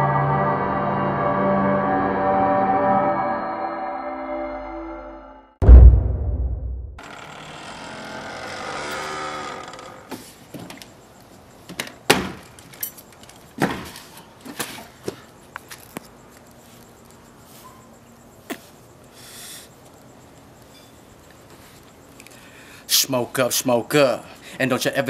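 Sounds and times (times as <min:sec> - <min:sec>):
breathy hiss blowing out smoke: 0:18.5 - 0:19.8.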